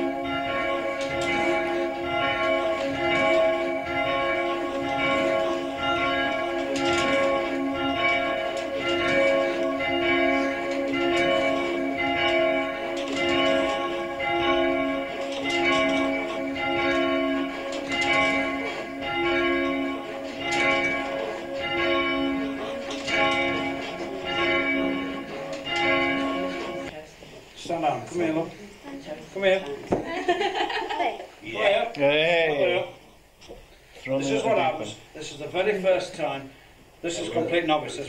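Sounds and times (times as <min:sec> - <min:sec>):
church bells ringing: 0:00.0 - 0:27.0.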